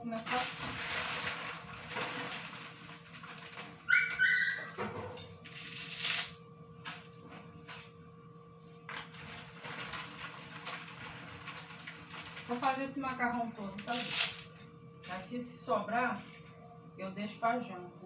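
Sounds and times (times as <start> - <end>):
kitchen clatter: 0.1 - 3.8.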